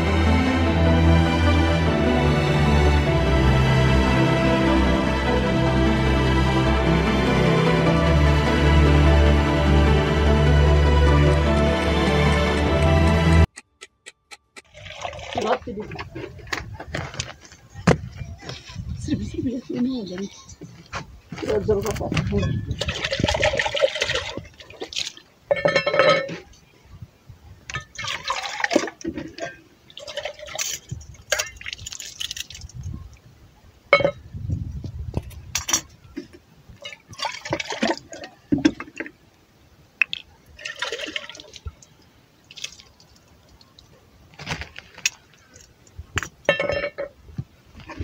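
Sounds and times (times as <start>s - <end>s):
water pouring and splashing from jug: 14.6s - 16.2s, 22.6s - 26.1s, 27.7s - 33.2s, 36.8s - 39.2s, 40.1s - 45.8s.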